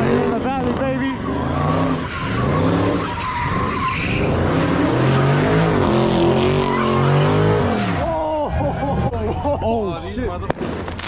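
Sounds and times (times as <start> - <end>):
car engine revving: 0.0 - 9.2
tyres screeching on asphalt: 0.0 - 10.1.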